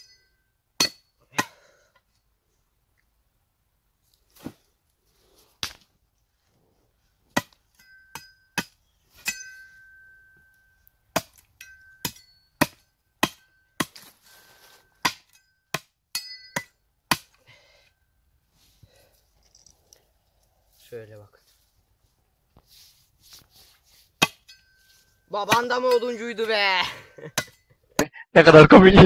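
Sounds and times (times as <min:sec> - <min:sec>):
steel blade ringing: 0:07.8 - 0:08.6, 0:09.2 - 0:10.8, 0:11.6 - 0:13.8, 0:15.3 - 0:16.8, 0:24.4 - 0:25.3
cleaver chopping wood: 0:11.1 - 0:11.4, 0:12.0 - 0:14.1, 0:15.0 - 0:17.4, 0:24.2 - 0:24.5.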